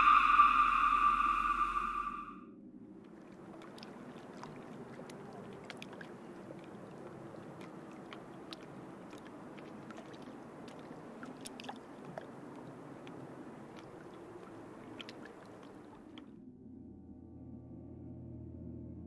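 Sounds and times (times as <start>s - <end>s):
low steady rush: 0.0s - 2.4s
small drips and splashes: 3.0s - 16.3s
lake water lapping: 3.1s - 16.2s.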